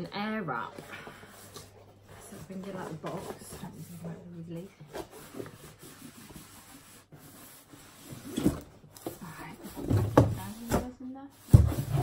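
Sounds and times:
cardboard rubbing and scraping: 0:01.4 - 0:12.0
knocks and scuffs on box: 0:09.8 - 0:12.0.

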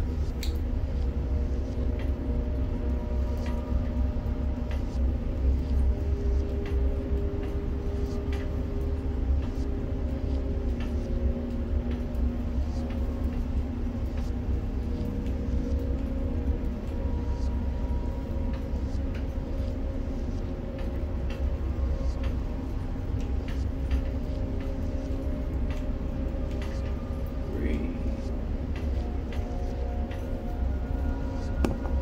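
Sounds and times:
light clicks: 0:00.3 - 0:00.7.

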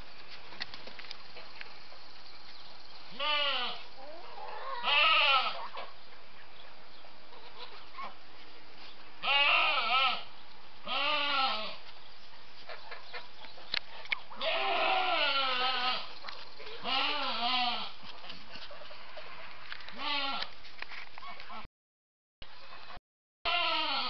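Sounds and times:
goat bleating: 0:03.2 - 0:03.8, 0:04.5 - 0:05.7, 0:09.2 - 0:11.8, 0:14.4 - 0:16.1, 0:16.7 - 0:18.0, 0:19.9 - 0:20.5, 0:23.5 - 0:24.0.

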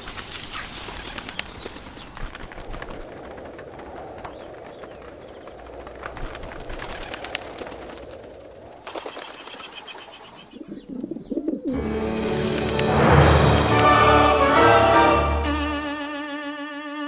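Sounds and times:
dove wings flapping: 0:00.0 - 0:10.4, 0:12.2 - 0:13.8
orchestral strings: 0:11.7 - 0:17.0.

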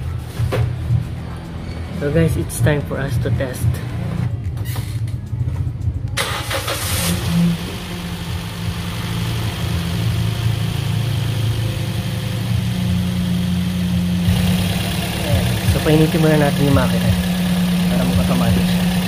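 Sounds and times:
car engine idling: 0:06.1 - 0:19.0.

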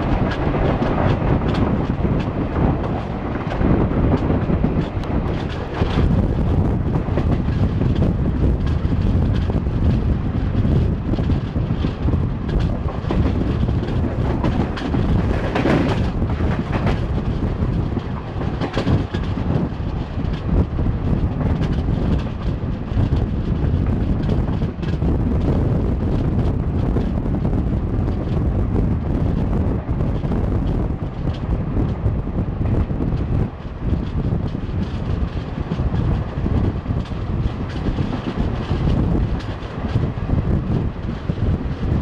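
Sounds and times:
train wheels rumbling on rail: 0:00.0 - 0:42.0
wind buffeting microphone: 0:00.0 - 0:42.0.

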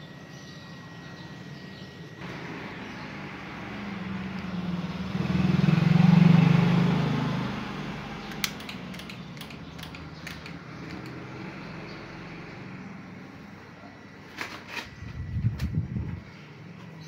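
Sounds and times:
vehicle passing by: 0:02.2 - 0:13.5
sharp clicks: 0:08.2 - 0:11.3.

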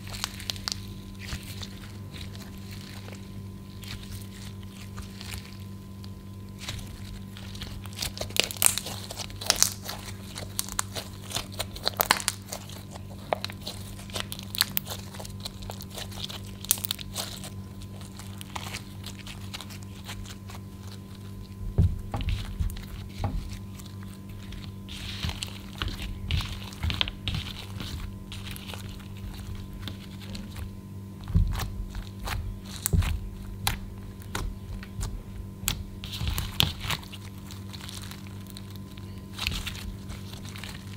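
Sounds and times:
slime popping and crackling: 0:00.0 - 0:40.9
slime squelches: 0:00.0 - 0:40.9
steady low hum: 0:00.0 - 0:40.9.

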